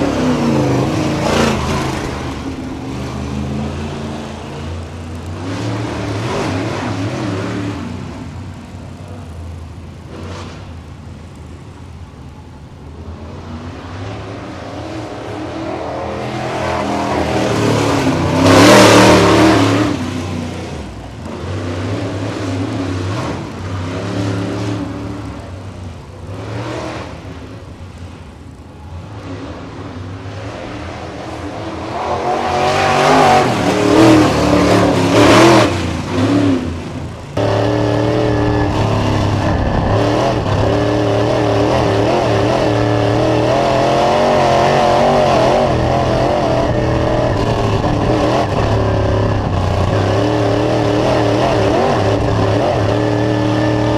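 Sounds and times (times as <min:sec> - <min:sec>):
engine drone inside car: 0:00.0 - 0:53.9
race car passing: 0:28.8 - 0:53.9.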